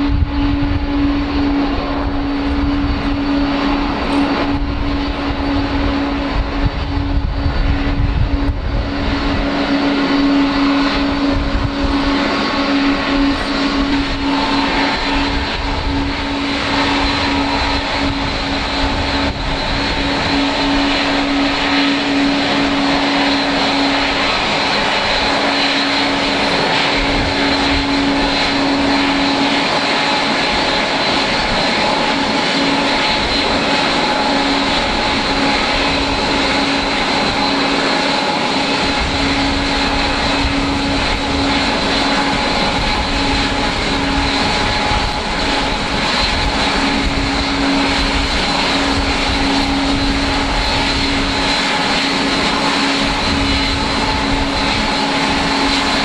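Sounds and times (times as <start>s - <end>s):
low rumble: 0.0s - 23.1s
jet engines whining: 0.0s - 56.0s.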